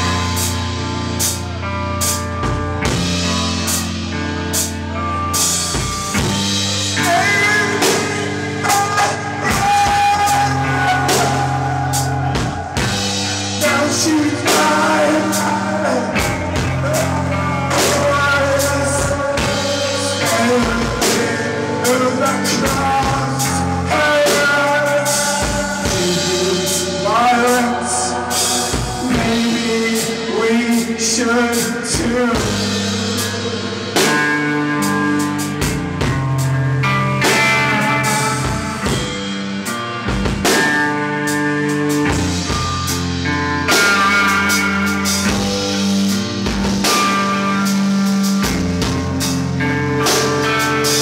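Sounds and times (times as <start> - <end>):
drum kit with snare and cymbals: 0.0 - 51.0
electric guitar: 0.0 - 51.0.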